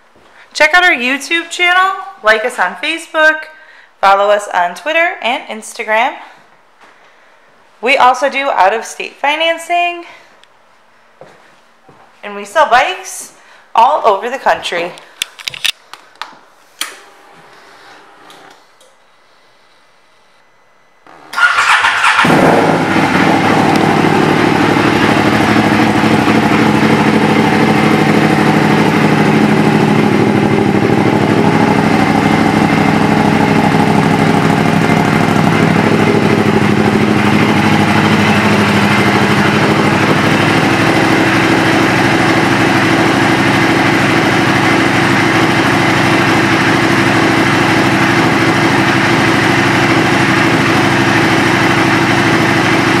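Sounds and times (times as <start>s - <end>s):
motorcycle engine idling: 21.1s - 53.0s.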